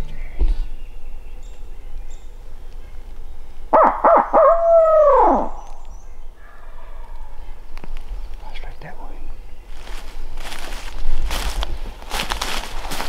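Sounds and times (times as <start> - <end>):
owl hooting: 3.7 - 7.7.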